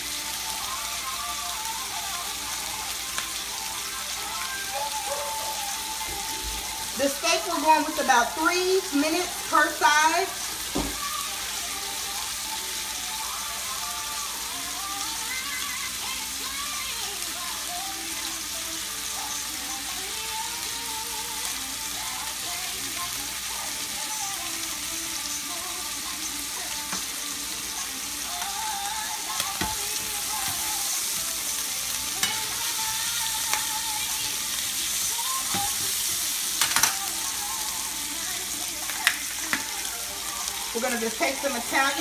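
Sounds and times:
steak sizzling in a frying pan: 0:00.0 - 0:42.0
tongs clicking against pan: 0:32.2 - 0:32.6, 0:36.6 - 0:37.0.

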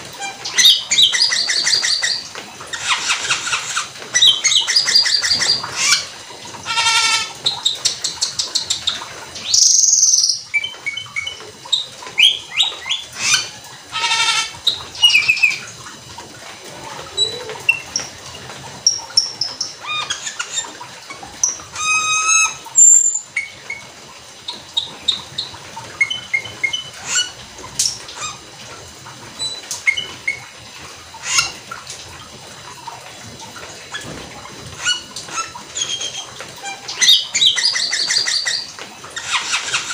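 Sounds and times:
starling singing chirps and whistles: 0:21.8 - 0:23.6.

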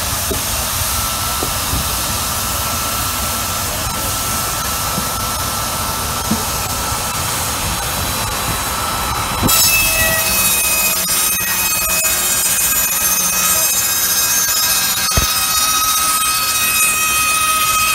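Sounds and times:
saw cutting timber: 0:00.0 - 0:17.9
circular saw blade spinning: 0:09.5 - 0:17.9.

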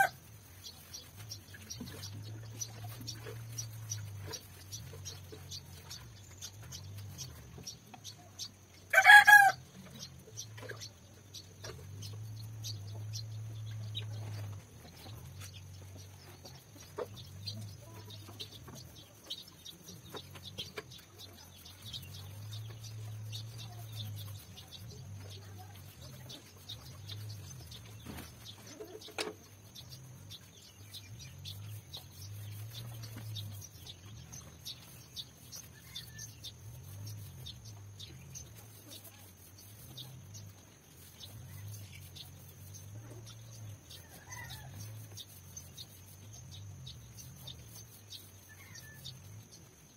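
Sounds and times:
chicken calling: 0:08.9 - 0:09.6.

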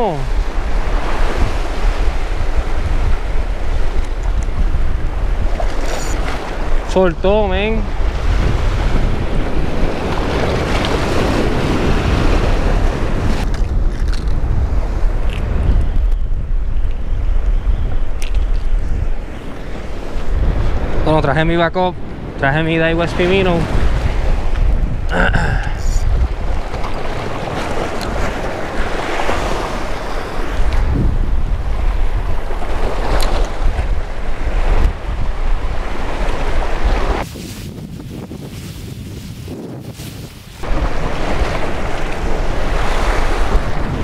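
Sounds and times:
surf washing over rocks: 0:00.0 - 0:03.9, 0:40.6 - 0:44.0
surf washing against rocks: 0:00.0 - 0:14.3, 0:19.5 - 0:37.7, 0:39.9 - 0:44.0
wind buffeting microphone: 0:00.0 - 0:44.0.

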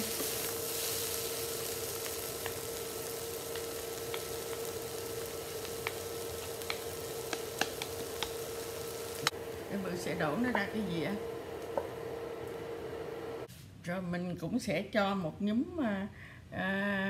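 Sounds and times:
rice sizzling in a frying pan: 0:00.0 - 0:13.5
steady hum: 0:00.0 - 0:13.5.

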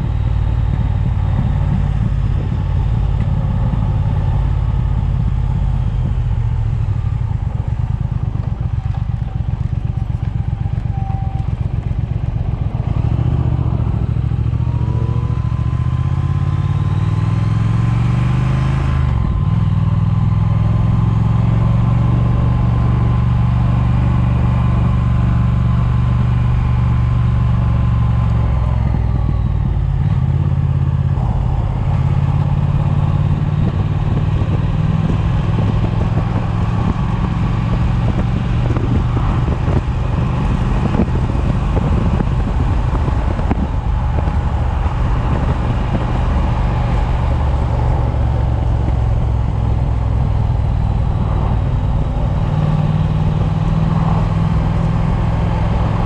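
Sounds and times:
motorcycle engine running: 0:00.0 - 0:56.0
wind noise on microphone: 0:00.0 - 0:56.0.

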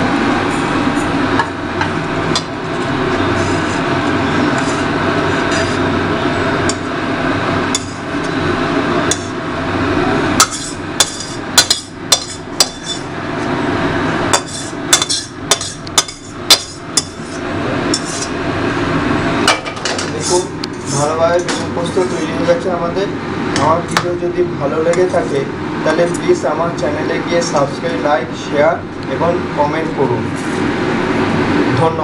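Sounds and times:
metal utensil scraping steel pan: 0:10.4 - 0:13.0, 0:14.4 - 0:18.3.

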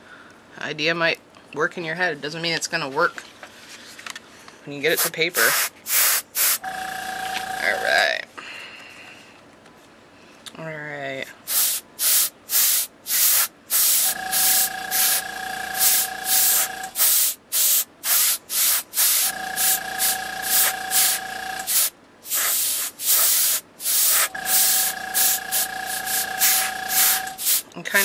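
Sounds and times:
airbrush air hiss bursts: 0:04.9 - 0:06.6, 0:11.5 - 0:28.0
airbrush compressor humming: 0:04.9 - 0:08.0, 0:11.5 - 0:28.0.

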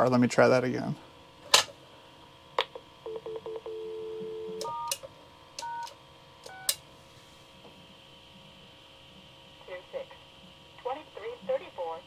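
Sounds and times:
dial tone: 0:03.1 - 0:04.9.

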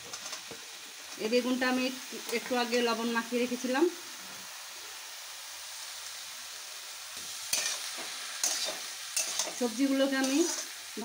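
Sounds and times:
vegetables sizzling in oil: 0:00.0 - 0:11.0
spatula scraping a pan: 0:07.2 - 0:10.8.

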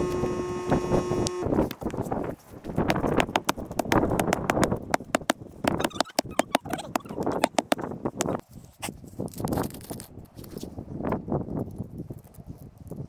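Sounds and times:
twigs rustling: 0:01.5 - 0:05.6
hatchet chopping branch: 0:02.7 - 0:05.8.

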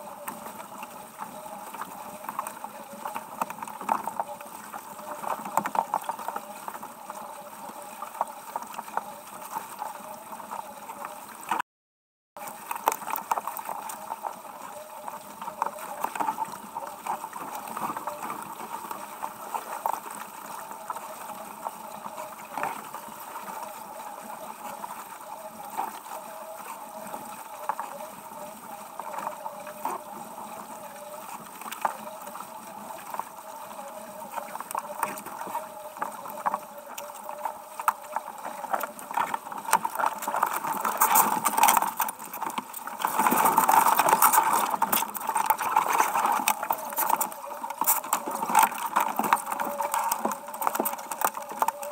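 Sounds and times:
rush of water and wind: 0:12.4 - 0:51.9.

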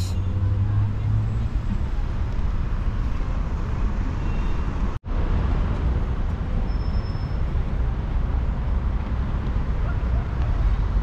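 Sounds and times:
city street traffic rumble: 0:00.0 - 0:11.0.

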